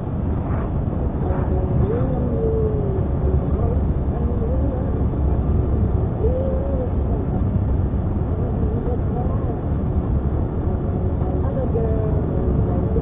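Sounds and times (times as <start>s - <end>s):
car road and engine rumble: 0.0s - 13.0s
faint voice: 1.1s - 5.1s, 6.0s - 7.6s.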